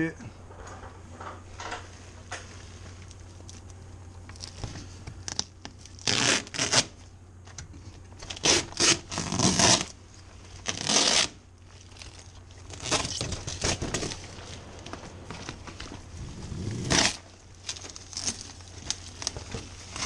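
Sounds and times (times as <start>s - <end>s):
foil tearing and crinkling: 3.1s - 7.0s, 8.2s - 20.0s.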